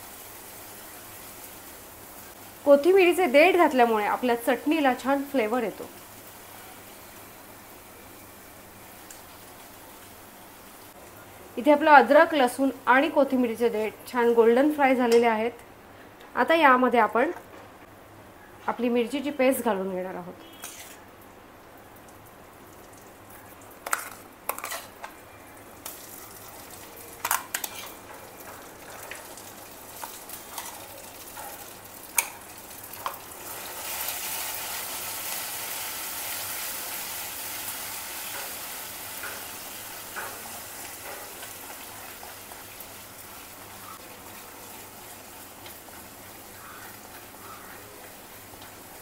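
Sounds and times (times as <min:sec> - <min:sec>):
paste sizzling in hot oil: 0:29.3 - 0:47.4.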